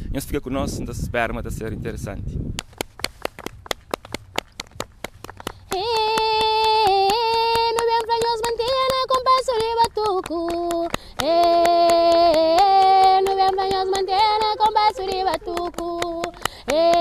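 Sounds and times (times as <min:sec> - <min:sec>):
women hand-clapping a rhythm: 0:02.6 - 0:17.0
woman singing long notes: 0:05.7 - 0:17.0.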